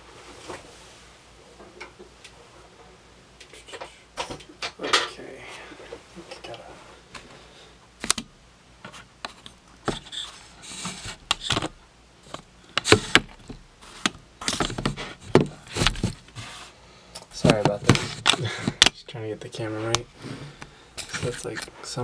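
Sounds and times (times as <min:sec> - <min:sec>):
camera handling knocks and rustles: 0:11.2 - 0:16.4.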